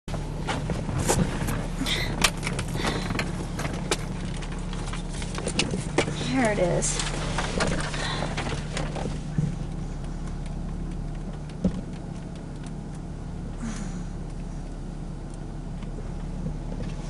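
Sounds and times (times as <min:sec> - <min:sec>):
low drone inside car: 0:00.1 - 0:17.0.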